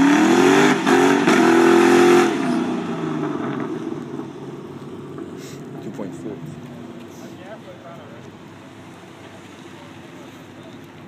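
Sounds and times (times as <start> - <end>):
car engine at full throttle: 0.0 - 7.4.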